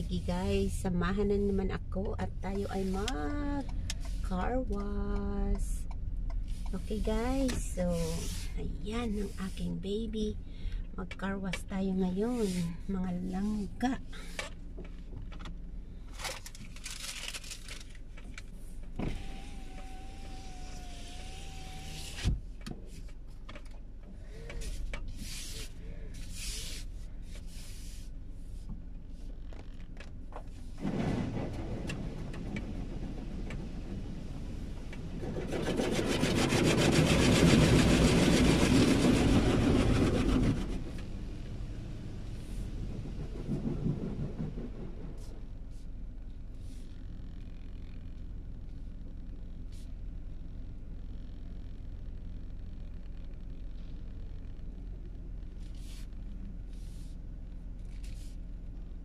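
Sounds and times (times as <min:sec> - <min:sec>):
car wash machine running: 0:15.0 - 0:22.3, 0:30.5 - 0:46.8.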